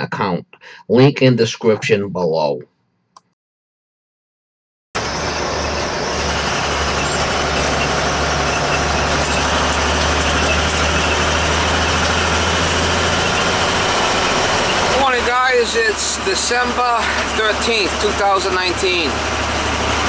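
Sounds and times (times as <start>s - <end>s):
road noise hiss: 5.0s - 20.0s
vehicle engine humming: 5.0s - 20.0s.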